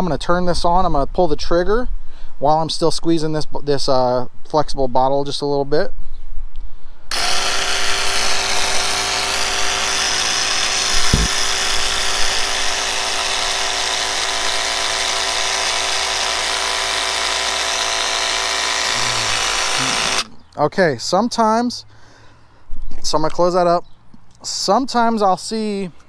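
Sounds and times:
paint sprayer pump buzzing: 0:07.1 - 0:20.3
low thump: 0:11.0 - 0:11.4.

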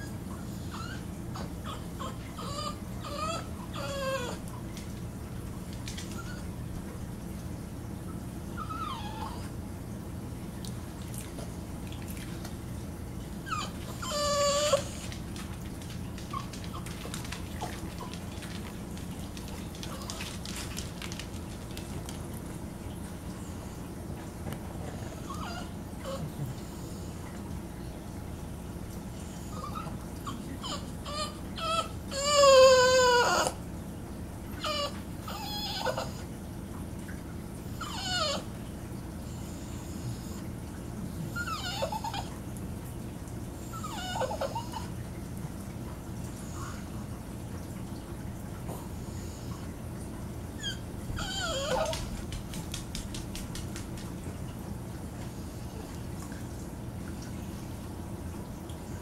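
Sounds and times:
dog whimpers: 0:00.0 - 0:05.0, 0:05.7 - 0:06.6, 0:08.5 - 0:09.6, 0:13.4 - 0:21.6, 0:24.9 - 0:27.1, 0:29.3 - 0:33.7, 0:34.5 - 0:36.4, 0:37.7 - 0:38.6, 0:41.2 - 0:42.4, 0:43.6 - 0:45.0, 0:50.5 - 0:54.1
dog whining: 0:00.0 - 0:05.0, 0:05.7 - 0:06.7, 0:08.5 - 0:09.6, 0:13.3 - 0:22.0, 0:24.9 - 0:27.1, 0:29.2 - 0:33.7, 0:34.5 - 0:36.3, 0:37.6 - 0:38.6, 0:41.2 - 0:42.5, 0:43.6 - 0:45.1, 0:50.5 - 0:54.1
steady low hum: 0:00.0 - 0:32.1.

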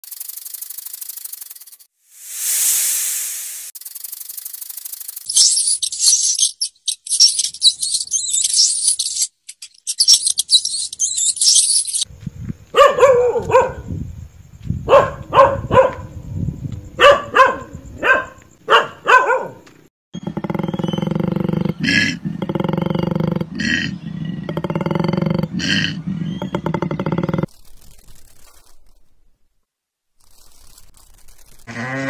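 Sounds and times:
scratchy high-pitched hissing: 0:00.0 - 0:09.2, 0:27.2 - 0:29.1, 0:30.2 - 0:31.7
dog barking: 0:12.7 - 0:13.9, 0:14.8 - 0:16.1, 0:17.0 - 0:19.6.

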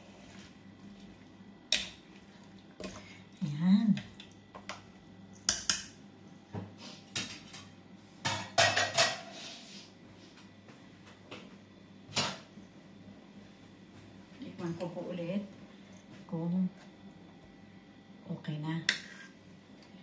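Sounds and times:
utensils and pots clattering: 0:08.3 - 0:09.4.

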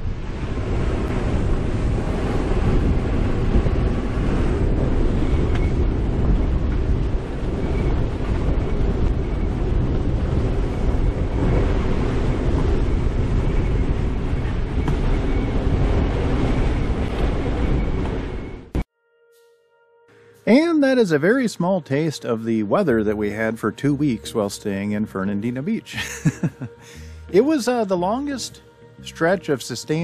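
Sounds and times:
strong wind buffeting microphone: 0:00.0 - 0:18.9.

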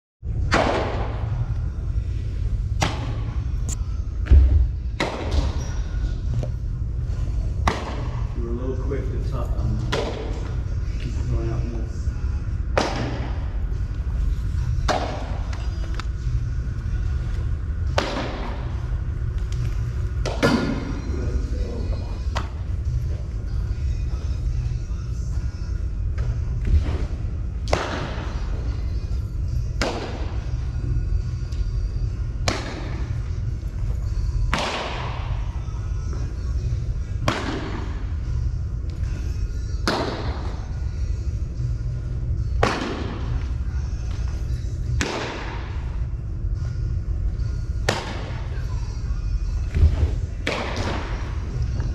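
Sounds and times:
balls striking with thuds: 0:00.4 - 0:01.6, 0:02.6 - 0:08.4, 0:09.5 - 0:10.7, 0:12.5 - 0:13.8, 0:14.6 - 0:16.2, 0:17.1 - 0:23.4, 0:26.0 - 0:39.1, 0:39.7 - 0:41.0, 0:42.4 - 0:46.7, 0:47.6 - 0:48.7, 0:49.5 - 0:51.9.

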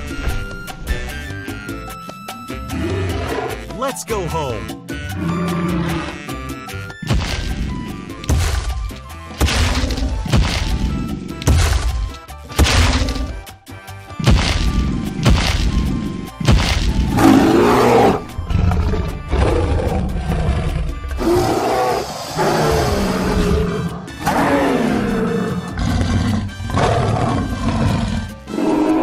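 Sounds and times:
background music: 0:00.0 - 0:29.0
dinosaur roars and growls: 0:02.5 - 0:03.7, 0:05.1 - 0:06.5, 0:17.1 - 0:29.0.

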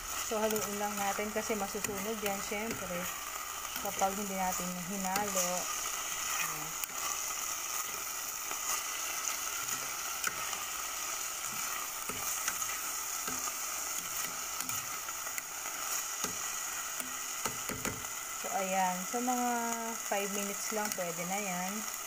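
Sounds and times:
food sizzling in hot oil: 0:00.0 - 0:22.0
spatula scraping a pot: 0:00.1 - 0:15.1.

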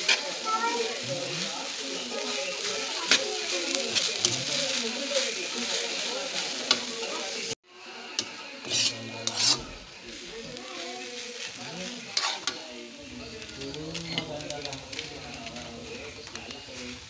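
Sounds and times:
metal spatula scraping a pan: 0:00.0 - 0:01.0, 0:01.6 - 0:07.2, 0:08.2 - 0:10.5, 0:11.1 - 0:12.6, 0:14.0 - 0:15.7
food sizzling in a wok: 0:00.0 - 0:17.0.

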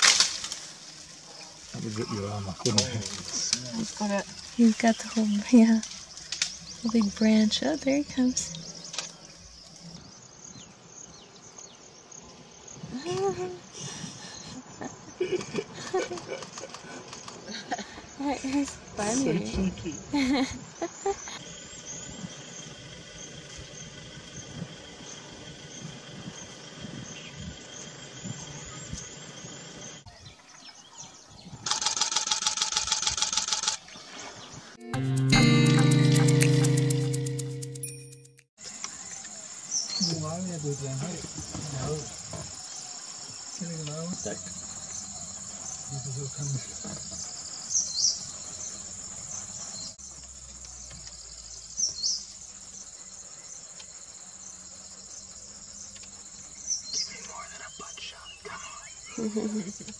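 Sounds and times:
insects trilling: 0:00.0 - 0:34.6, 0:38.6 - 0:59.9
faint bird chirps: 0:41.7 - 0:59.9.

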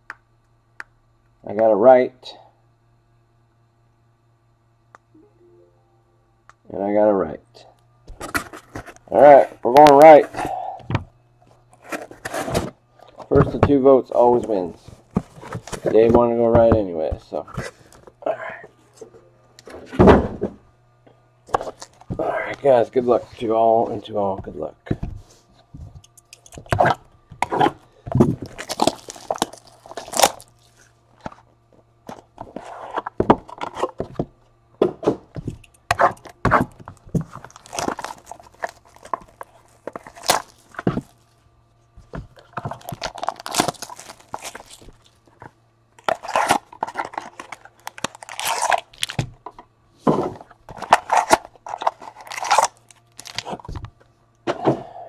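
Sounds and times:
faint low hum: 0:00.0 - 0:55.0
foil packs crinkling: 0:14.2 - 0:18.1, 0:21.5 - 0:23.5, 0:26.4 - 0:31.5, 0:36.0 - 0:41.4, 0:42.1 - 0:49.3, 0:50.4 - 0:53.8
cardboard tearing: 0:14.3 - 0:16.3, 0:26.6 - 0:31.4, 0:35.9 - 0:41.2, 0:42.3 - 0:45.2, 0:46.0 - 0:49.3, 0:50.3 - 0:53.7.

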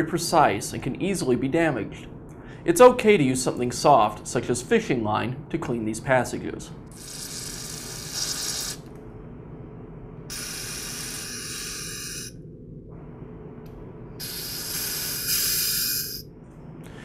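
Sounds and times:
aerosol spray hissing: 0:07.0 - 0:08.8, 0:10.3 - 0:12.3, 0:14.2 - 0:16.2.

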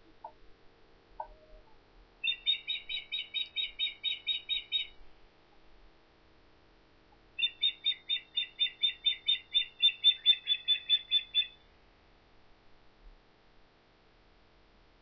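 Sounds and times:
bird of prey calling: 0:02.2 - 0:05.0, 0:07.4 - 0:11.6.

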